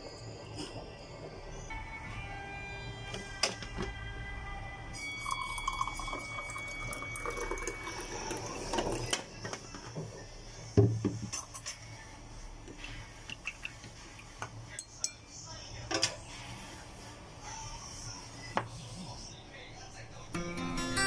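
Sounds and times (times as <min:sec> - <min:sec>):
water pouring into a glass: 0:05.0 - 0:09.4.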